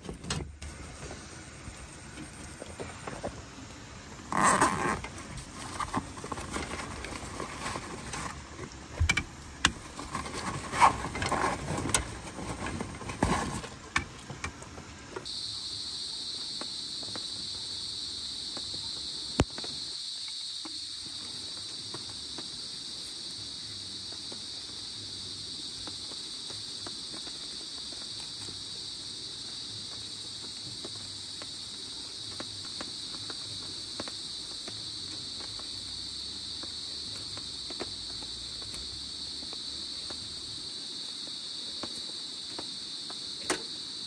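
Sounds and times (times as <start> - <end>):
insects chirring: 0.0 - 14.0, 15.1 - 44.0.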